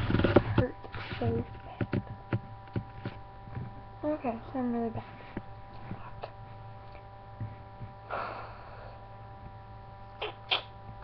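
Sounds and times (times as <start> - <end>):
electrical hum: 0.0 - 11.0
person breathing: 8.0 - 9.1.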